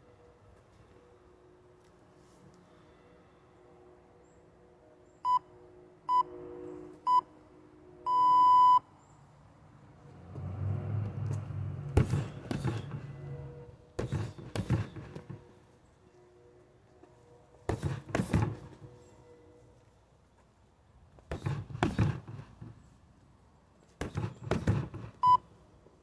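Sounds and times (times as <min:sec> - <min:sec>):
strikes thudding on heavy bag: 0:14.0 - 0:15.4, 0:17.7 - 0:18.8, 0:21.3 - 0:22.5.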